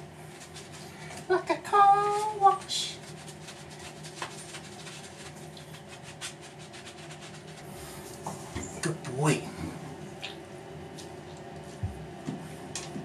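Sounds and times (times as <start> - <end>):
brush scrubbing wet fur: 0.0 - 8.2
steady low hum: 0.0 - 13.0.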